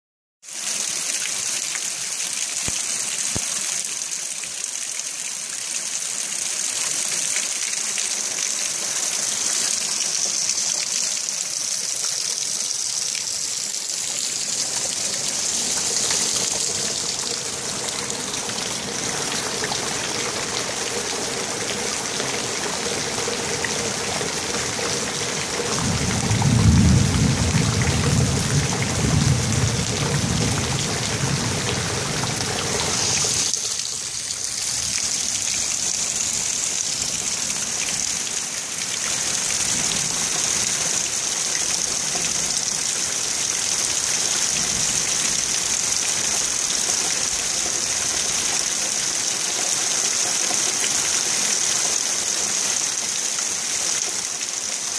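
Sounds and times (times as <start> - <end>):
steady rain falling: 0.4 - 54.9
distant thunder rumble: 25.7 - 32.5.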